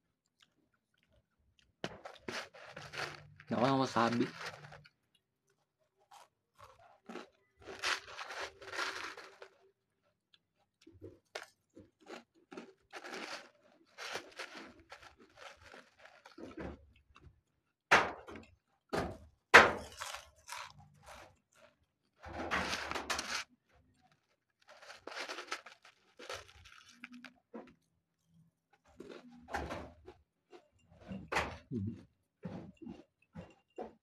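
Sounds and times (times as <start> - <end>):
potato chips crunching: 1.0 - 5.2, 6.1 - 9.9, 10.7 - 17.3, 19.6 - 21.9, 22.5 - 27.9, 28.8 - 29.3.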